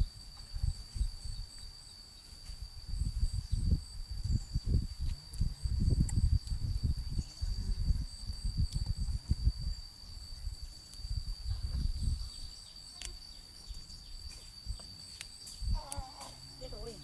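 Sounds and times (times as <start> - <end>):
high insect trill: 0.0 - 17.0.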